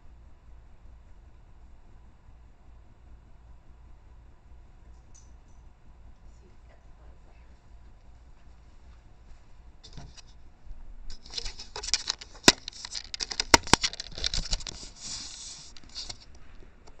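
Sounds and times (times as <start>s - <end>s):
scraping and rustling of camera: 8.3s - 10.4s, 11.1s - 16.4s.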